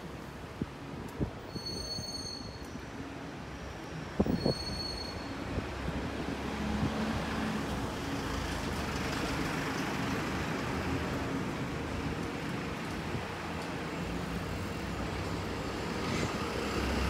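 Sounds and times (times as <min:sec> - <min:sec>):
road traffic hum: 0:05.1 - 0:17.0.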